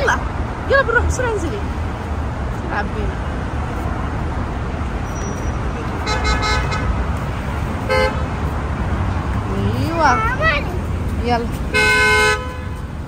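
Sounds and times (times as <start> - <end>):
road traffic rumbling: 0.0 - 13.0
car horn blasts: 6.0 - 7.0, 7.8 - 8.3, 11.7 - 12.8.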